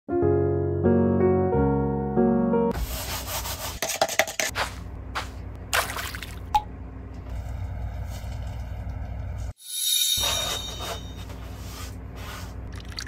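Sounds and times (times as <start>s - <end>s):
paint scraping and rubbing: 2.7s - 5.4s, 10.2s - 12.7s.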